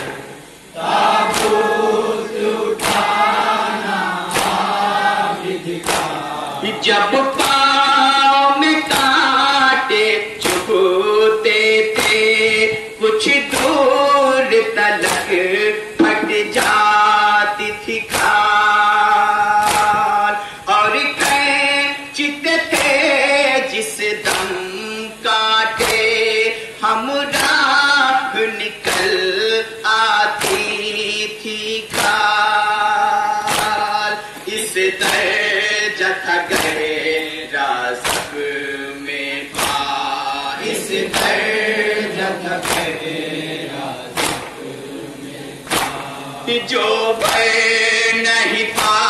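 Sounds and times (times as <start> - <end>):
men chanting a lament: 0.0 - 49.0
hand strikes on chest: 39.6 - 39.9.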